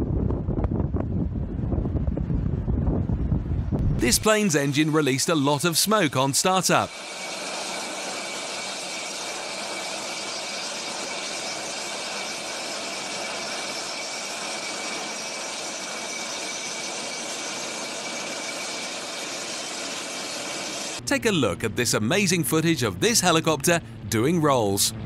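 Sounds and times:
whine rising in pitch: 3.6 - 25.0
jet engine starting up: 3.7 - 25.0
high tone: 3.8 - 7.0.

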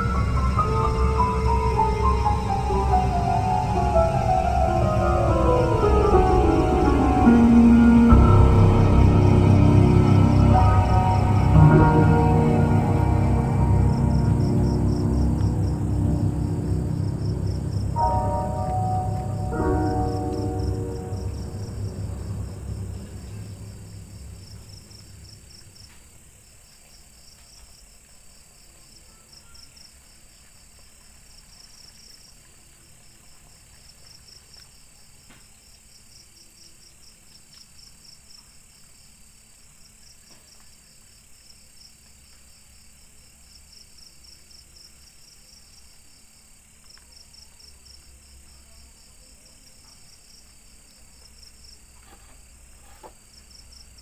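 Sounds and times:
low music tone: 0.0 - 26.0
crickets chirping in trills: 0.0 - 54.0
high insect hum: 0.0 - 54.0.

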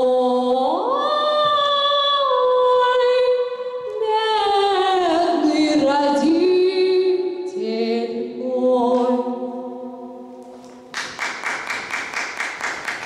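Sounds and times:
woman singing a cappella: 0.0 - 10.4.

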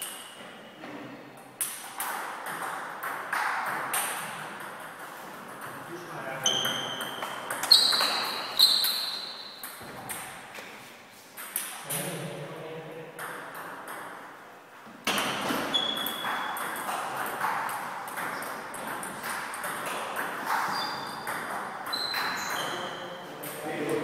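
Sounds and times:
table tennis balls clicking: 15.1 - 23.7.

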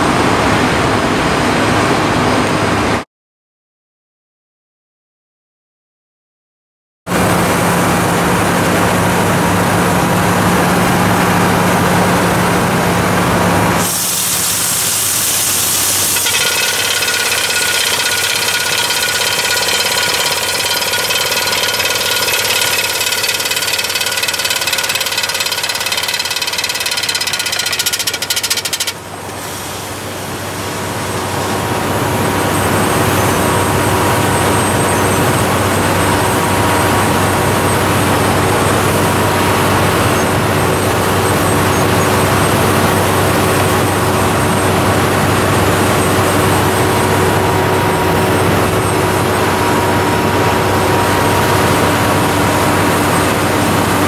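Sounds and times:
compressed air blowing: 13.8 - 16.4
rattling drill: 13.8 - 29.7
drill rig boring: 13.8 - 30.2.

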